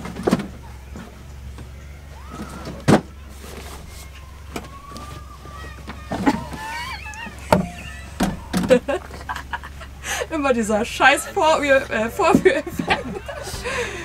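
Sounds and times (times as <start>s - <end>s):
steady low hum: 0.0s - 14.0s
seat base knocking and rattling: 2.3s - 9.3s.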